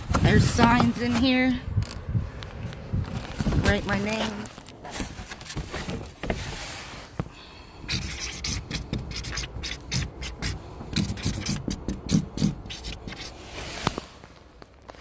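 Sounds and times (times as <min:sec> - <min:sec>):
marker scratching on cardboard: 0:07.9 - 0:13.4
phone rubbing against surface: 0:07.9 - 0:14.1.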